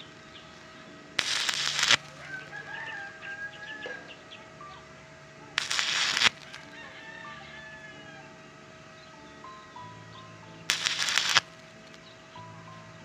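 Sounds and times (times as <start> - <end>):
welding arc crackling: 0.0 - 2.8, 5.4 - 6.8, 10.7 - 12.2
rooster crowing: 1.6 - 4.8, 5.5 - 8.7.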